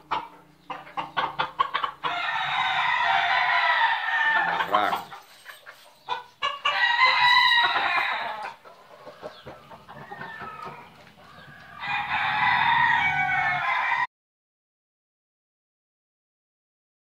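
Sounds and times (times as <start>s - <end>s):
chicken clucking: 0.0s - 14.0s
rooster crowing: 1.9s - 5.1s, 6.4s - 8.6s, 9.9s - 14.1s.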